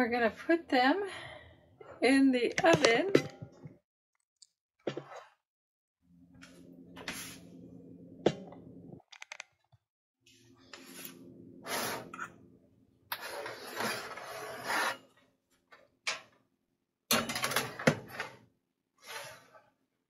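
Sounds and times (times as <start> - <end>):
metal pans scraping in oven: 10.8 - 12.3, 13.1 - 15.1, 19.0 - 19.6.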